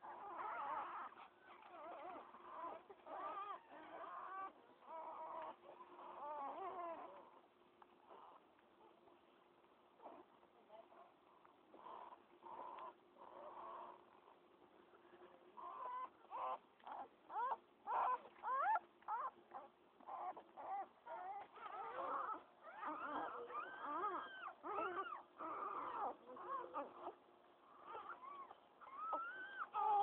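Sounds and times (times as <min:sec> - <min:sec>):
puppies squealing: 0:00.0 - 0:07.2, 0:15.6 - 0:30.0.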